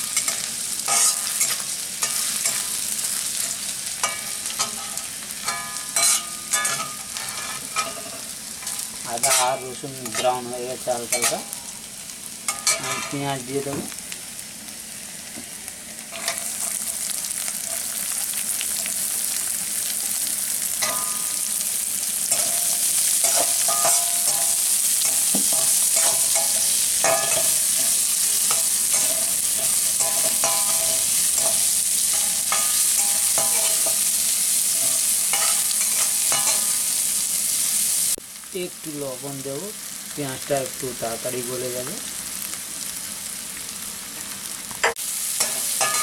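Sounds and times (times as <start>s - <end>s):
metal spatula scraping pan: 0.0s - 11.6s, 22.3s - 36.8s
onion sizzling in hot oil: 0.0s - 46.0s.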